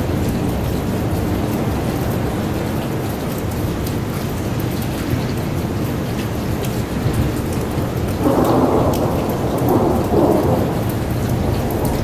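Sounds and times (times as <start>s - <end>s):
steady rain: 0.0s - 12.0s
thunder rumbling: 8.2s - 12.0s.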